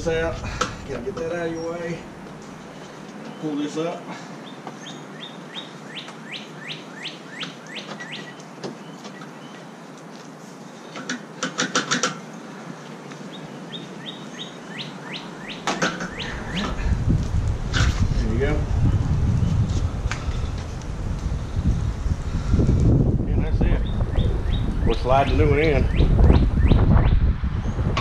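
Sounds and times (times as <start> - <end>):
songbird whistling: 13.7 - 16.8
low rumble: 16.2 - 28.0.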